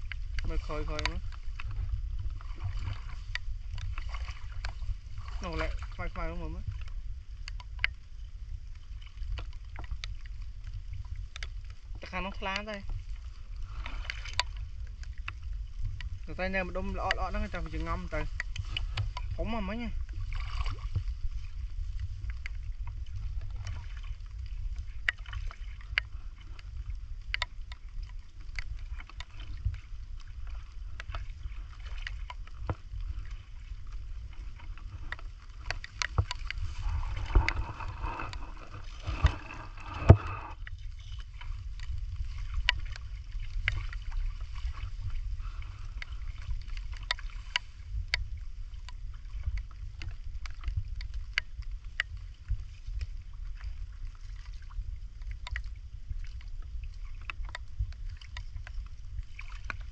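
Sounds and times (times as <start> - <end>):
splashing in shallow water: 0.0 - 59.9
steady low rumble: 0.0 - 59.9
small clicks: 27.2 - 29.4.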